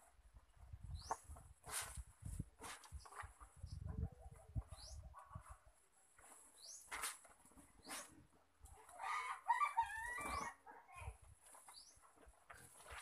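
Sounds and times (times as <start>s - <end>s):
rooster crowing: 9.0s - 10.6s.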